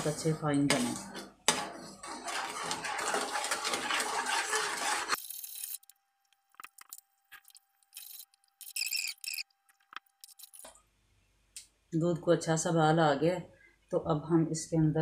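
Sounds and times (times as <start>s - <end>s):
spoon scraping in steel pan: 0.0s - 5.2s.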